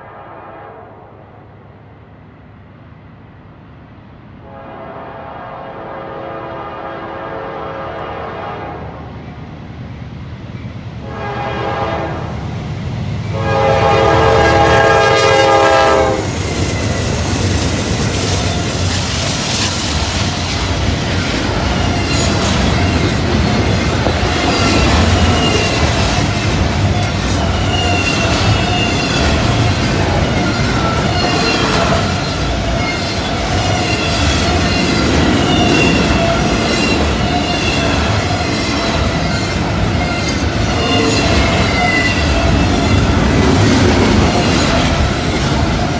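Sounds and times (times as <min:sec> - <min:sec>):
locomotive air horn blasts: 0:04.4 - 0:08.9, 0:11.0 - 0:12.3, 0:13.3 - 0:16.4
rolling clatter of rail cars: 0:06.3 - 0:45.9
locomotives rumbling past: 0:07.5 - 0:45.9.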